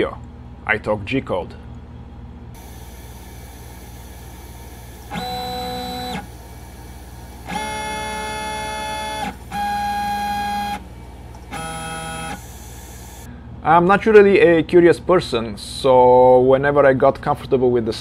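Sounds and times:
steady low hum: 0.0s - 17.9s
stepper motors whining: 2.6s - 13.3s.

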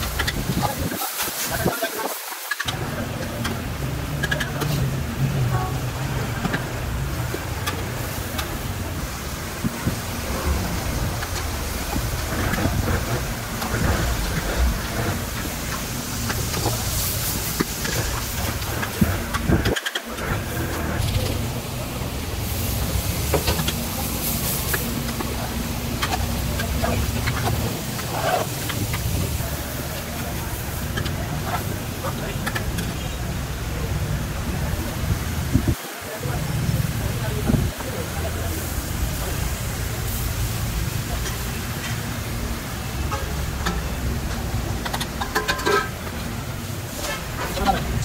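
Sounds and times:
low rumble: 2.9s - 19.6s
steel bowls and pots clinking: 39.0s - 48.0s
ladle clinking on steel pots: 43.0s - 46.3s.

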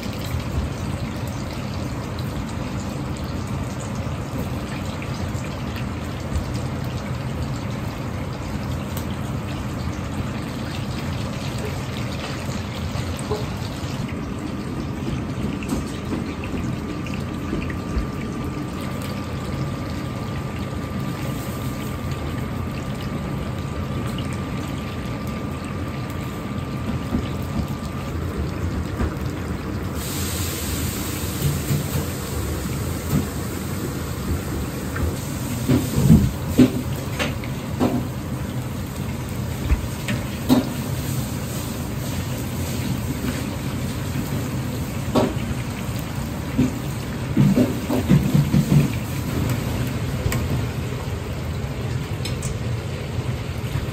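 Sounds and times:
oil sizzling and bubbling: 0.0s - 53.9s
bright hiss: 30.0s - 31.7s.

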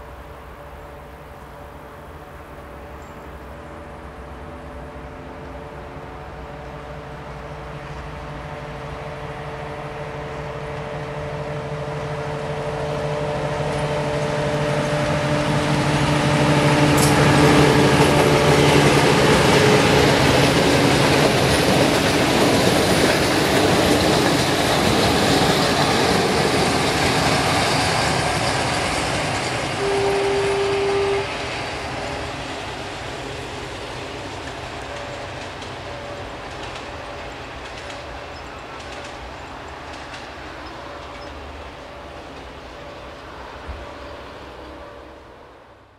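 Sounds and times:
locomotive engine drone: 0.0s - 45.9s
train wheels rushing past: 2.0s - 45.9s
train horn blast: 29.6s - 32.2s.

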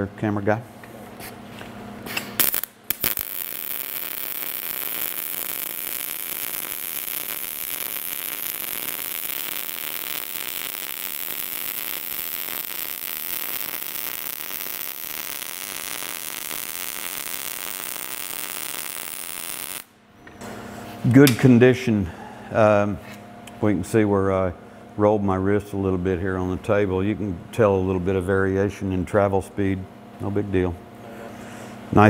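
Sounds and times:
welding arc crackling: 2.4s - 20.0s.

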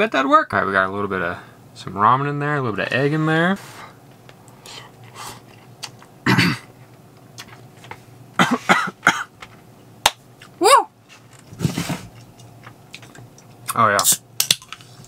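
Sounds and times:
person coughing: 6.2s - 6.7s, 8.4s - 9.3s.

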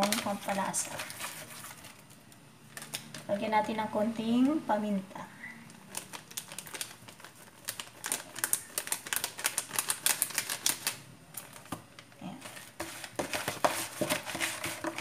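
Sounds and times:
handling sounds: 9.8s - 15.0s.

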